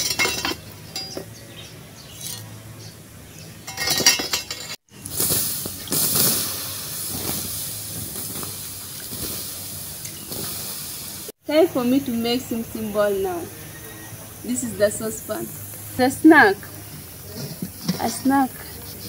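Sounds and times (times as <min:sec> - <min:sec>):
charcoal clinking and scraping: 0:00.0 - 0:01.4, 0:02.1 - 0:02.6, 0:03.6 - 0:11.2, 0:16.7 - 0:19.0
hissing noise: 0:04.9 - 0:19.0.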